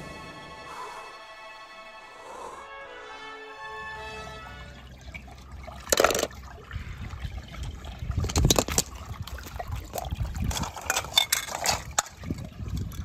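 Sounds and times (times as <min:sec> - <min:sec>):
water sloshing and dripping: 0:03.6 - 0:13.0
water splashes: 0:03.8 - 0:13.0.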